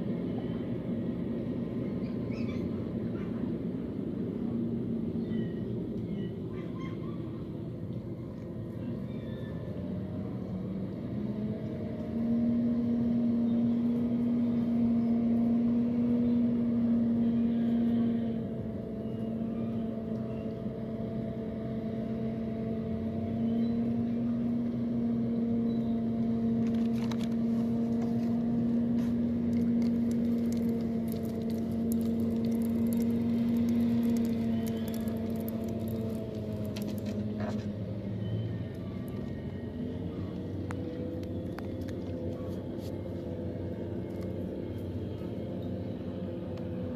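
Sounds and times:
engine droning hum: 0.0 - 46.9.

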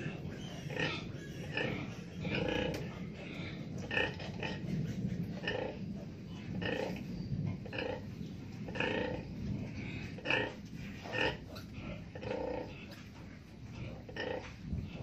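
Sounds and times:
low rumble: 0.0 - 15.0
pigs grunting: 0.0 - 15.0.

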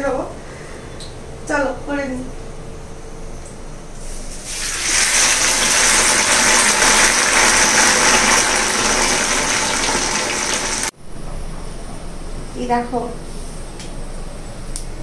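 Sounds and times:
okra sizzling in hot oil: 4.4 - 11.0.

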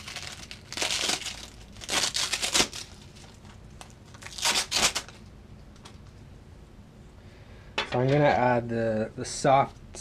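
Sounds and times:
velcro strips ripping apart: 0.0 - 5.2.

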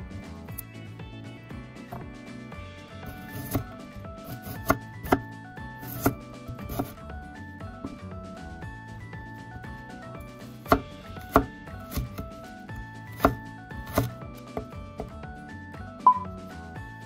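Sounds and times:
background music: 0.0 - 17.0
knife chopping on wooden board: 3.1 - 7.0, 10.6 - 12.3, 13.1 - 15.2.

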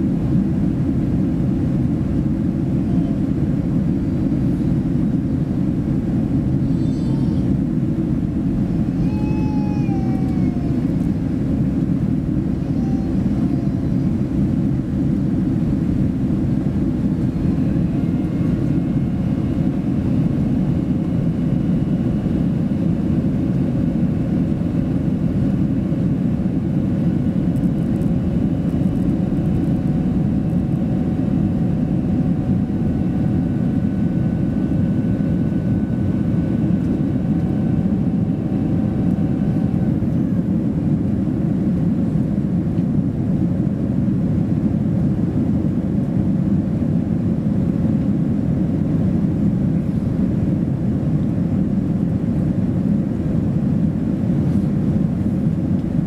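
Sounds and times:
airplane cabin roar: 0.0 - 56.0
faint steady whines: 0.0 - 56.0.

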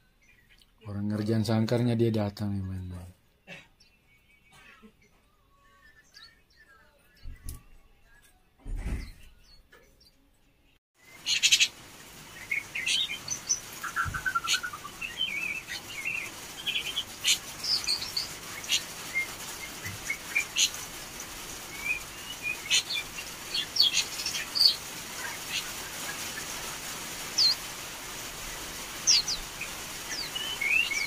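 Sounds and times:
young bird twittering: 11.2 - 11.7.

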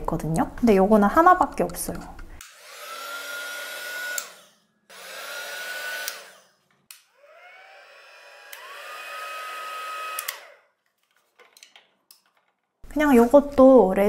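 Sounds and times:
heat gun fan whirring: 2.4 - 12.4
heat gun switch click: 4.1 - 4.4, 10.1 - 10.4.

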